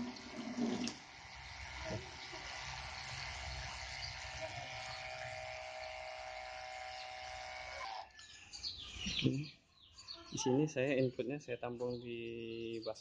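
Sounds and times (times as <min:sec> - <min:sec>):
water spraying from a hose: 0:00.0 - 0:07.9
water pump whining: 0:00.0 - 0:08.2.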